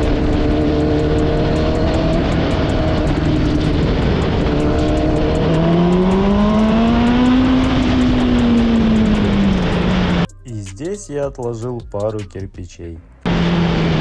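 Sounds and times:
motorcycle engine revving: 0.0 - 10.3, 13.2 - 14.0.

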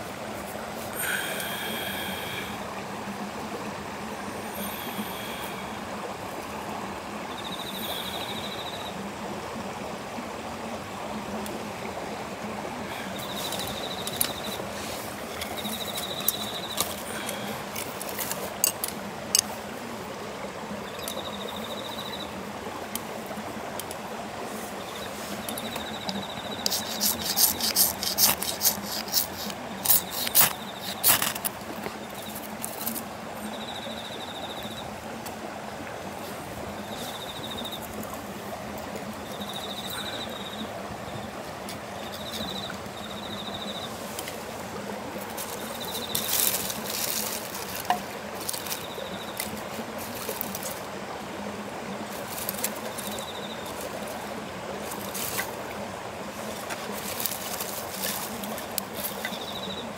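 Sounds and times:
steady outdoor hiss: 0.0 - 59.9
ferro rod scraped with striker: 26.6 - 31.5.

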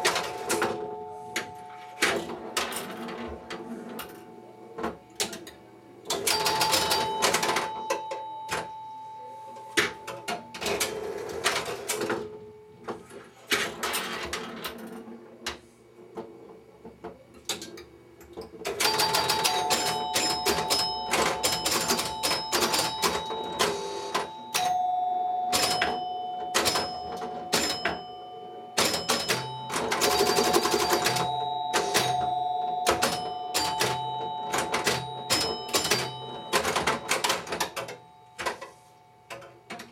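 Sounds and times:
pinball machine clicking and clattering: 0.0 - 8.8, 9.8 - 15.2, 17.1 - 39.9
chimes and bell ringing: 18.9 - 38.9.

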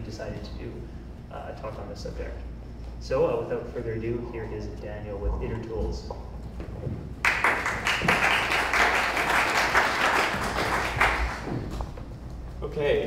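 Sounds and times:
audience applauding: 7.2 - 11.8.

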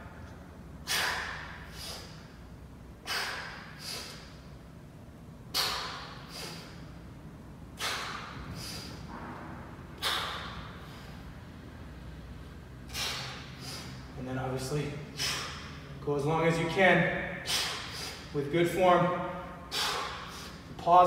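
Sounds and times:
man breathing hard: 0.8 - 4.7, 5.5 - 9.1, 9.9 - 11.6, 12.2 - 14.2, 15.0 - 15.9, 17.4 - 18.4, 19.3 - 20.7.

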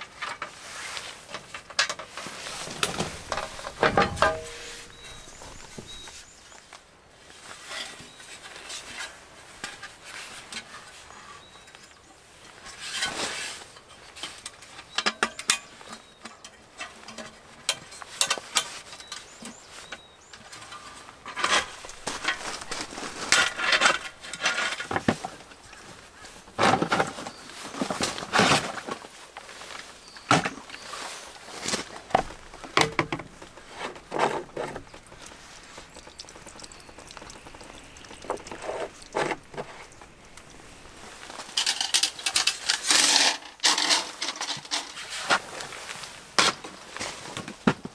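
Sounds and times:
plastic and metal parts clacking: 1.3 - 6.1, 20.4 - 25.4, 36.5 - 45.0.

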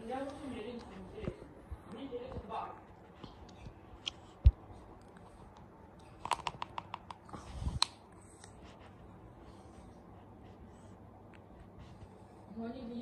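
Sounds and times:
plastic piece clicking and tapping: 6.2 - 7.2.

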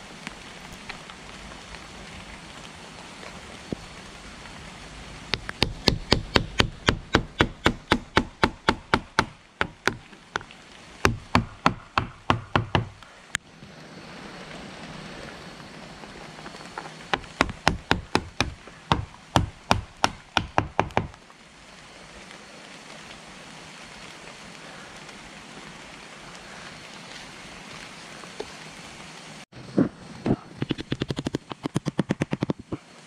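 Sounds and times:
hammer striking nails into wood: 5.3 - 10.0, 11.1 - 13.0, 17.2 - 21.1.

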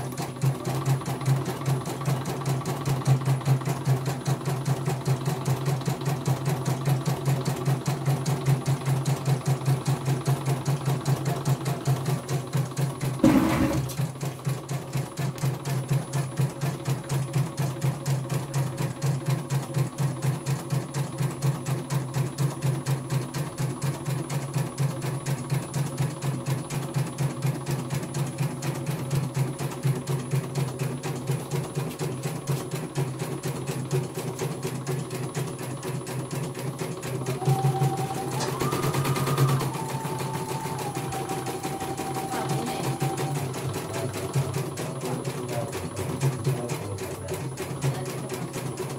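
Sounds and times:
embroidery machine stitching: 0.0 - 48.9
knock: 13.2 - 14.0.

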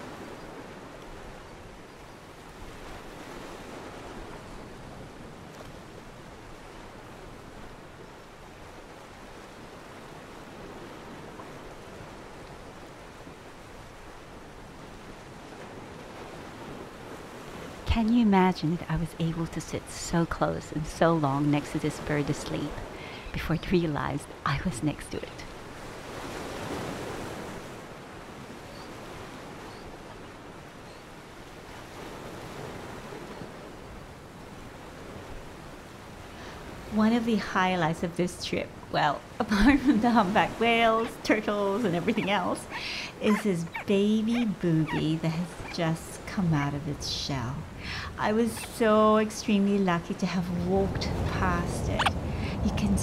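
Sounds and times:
sea surf washing in: 0.0 - 1.5, 25.6 - 38.4, 39.2 - 53.0
small waves hissing on beach: 0.0 - 53.0
wind buffeting microphone: 38.8 - 53.0.

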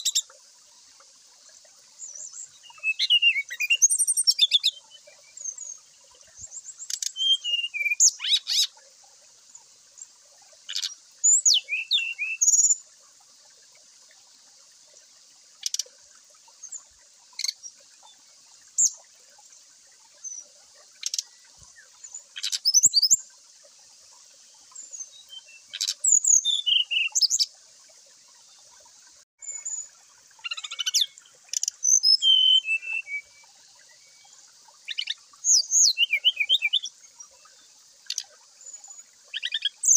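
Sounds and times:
bird singing whistled trills: 2.0 - 5.8, 6.4 - 8.7, 10.7 - 12.8, 22.0 - 23.2, 24.8 - 27.5, 29.4 - 33.5, 34.9 - 36.9.

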